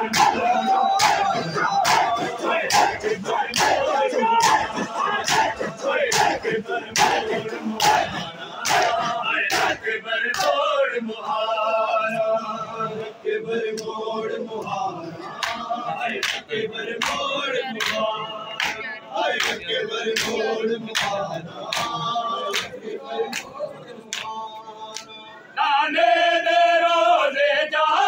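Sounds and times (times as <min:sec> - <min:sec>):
crowd of men chanting: 0:00.0 - 0:28.0
chest-beating slaps: 0:00.1 - 0:03.8, 0:04.4 - 0:05.5.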